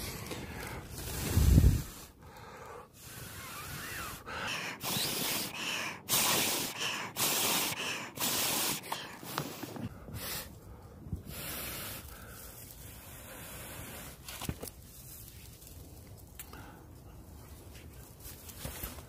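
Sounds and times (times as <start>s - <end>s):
person blowing hard: 3.0s - 10.4s
dry grass rustling: 14.2s - 19.0s.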